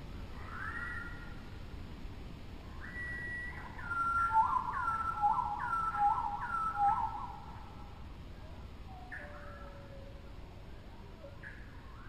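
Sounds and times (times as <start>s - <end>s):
whistled calls: 0.4s - 1.4s, 2.8s - 7.6s, 8.9s - 10.1s, 11.3s - 12.0s.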